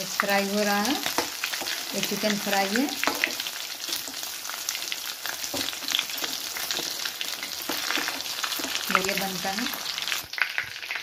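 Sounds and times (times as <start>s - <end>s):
chicken deep-frying in hot oil: 0.0s - 11.0s
oil crackles and spatter pops: 5.4s - 11.0s.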